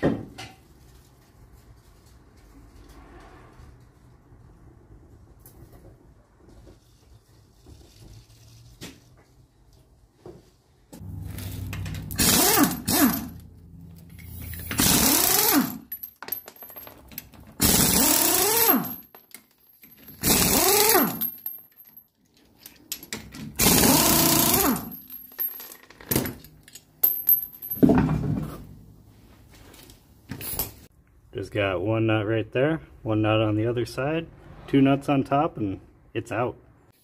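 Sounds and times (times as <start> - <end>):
air impact wrench bursts: 12.0 - 13.4, 14.6 - 15.9, 17.6 - 18.9, 20.2 - 21.2, 23.6 - 24.9.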